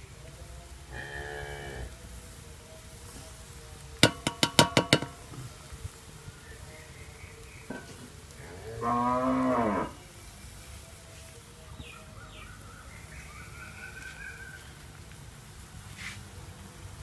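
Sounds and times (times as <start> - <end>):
cow mooing: 0.9 - 1.9, 8.4 - 10.0.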